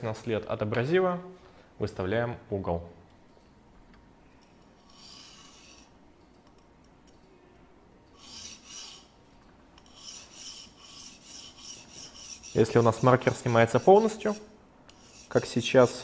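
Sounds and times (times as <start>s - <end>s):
sharpening stone scraping knife blade: 4.8s - 5.9s, 8.2s - 9.2s, 9.8s - 15.6s.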